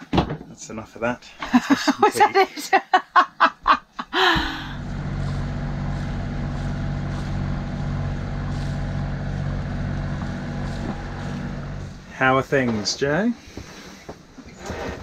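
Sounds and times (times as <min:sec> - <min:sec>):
boat diesel engines humming: 0:04.2 - 0:12.7.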